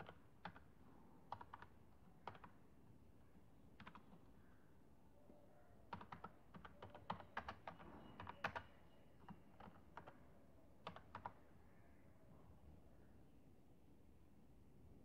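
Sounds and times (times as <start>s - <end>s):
typing on computer keyboard: 0.0s - 2.6s, 3.8s - 4.3s, 5.9s - 10.2s, 10.8s - 11.4s.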